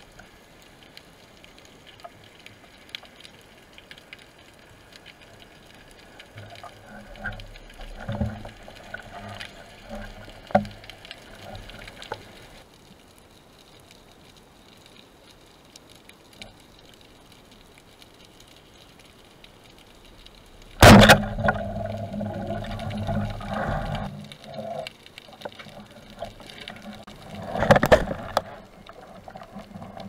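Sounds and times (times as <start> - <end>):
faint clicks: 0.0 - 30.0
rushing water: 0.0 - 30.0
speargun crack underwater: 20.7 - 24.1, 27.4 - 28.6.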